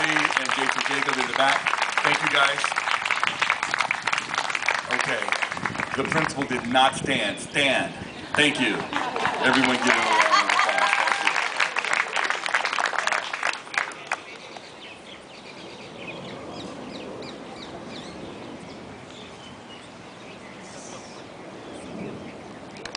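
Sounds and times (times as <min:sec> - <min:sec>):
audience clapping: 0:00.0 - 0:06.9, 0:08.3 - 0:14.7
birds chirping: 0:04.9 - 0:10.2, 0:13.8 - 0:22.9.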